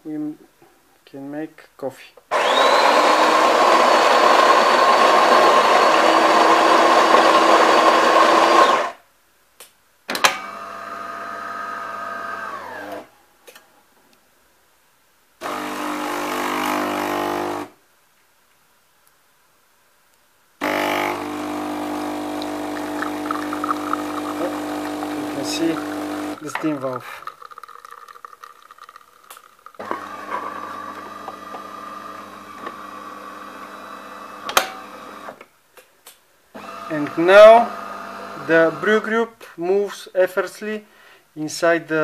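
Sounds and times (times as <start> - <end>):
brew unit motor: 2.3 - 9.0, 10.3 - 13.1, 15.4 - 17.7, 20.6 - 35.4, 36.6 - 39.1
coffee grinder running: 2.3 - 9.0, 10.4 - 13.0, 15.4 - 17.7, 20.6 - 35.4, 36.6 - 39.1
water pump humming: 20.6 - 35.3, 36.6 - 39.0.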